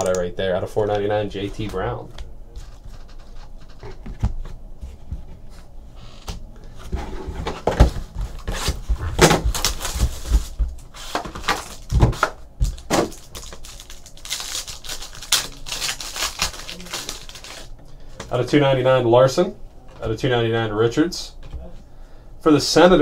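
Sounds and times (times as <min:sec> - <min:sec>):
foil wrapper crinkling: 0:08.4 - 0:12.0, 0:12.6 - 0:17.7.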